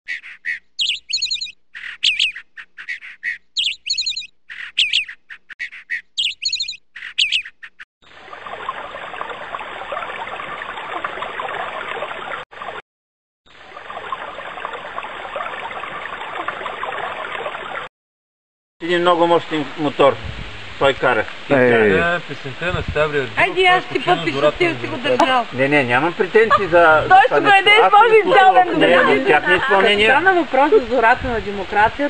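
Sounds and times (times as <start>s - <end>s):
songbird trilling: 0.1s - 7.8s.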